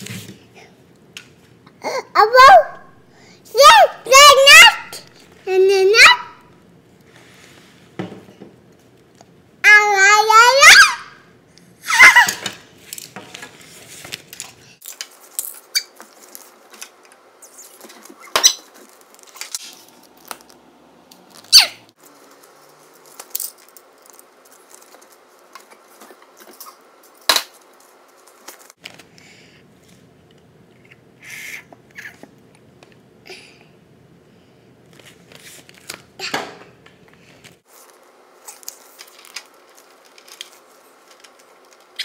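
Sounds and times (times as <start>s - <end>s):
child squealing: 3.6s - 5.0s, 9.7s - 11.2s, 11.8s - 12.4s, 21.5s - 21.8s
faint steady hum: 12.5s - 42.0s.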